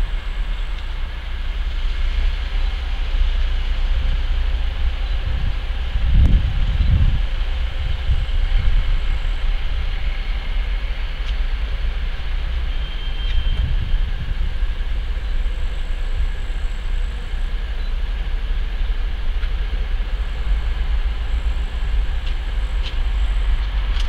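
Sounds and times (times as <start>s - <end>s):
locomotive engine rumbling: 0.0s - 24.0s
turbocharger whistle: 12.6s - 14.1s.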